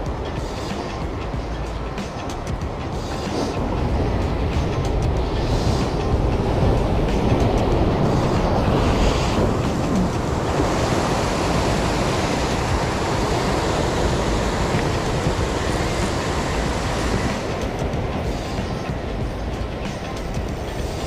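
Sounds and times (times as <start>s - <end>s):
wind on microphone: 0.0s - 21.0s
surf breaking over rocks: 2.1s - 21.0s.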